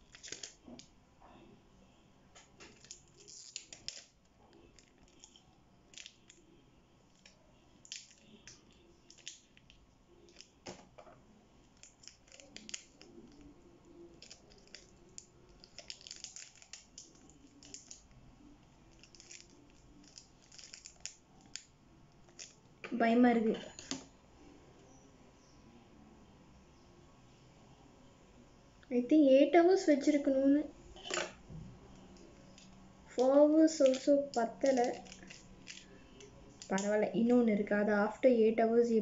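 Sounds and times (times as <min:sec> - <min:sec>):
plastic wrapper crinkling: 0:00.0 - 0:00.9, 0:02.6 - 0:06.4, 0:07.1 - 0:10.9, 0:11.6 - 0:18.2, 0:18.8 - 0:22.6, 0:32.1 - 0:37.0.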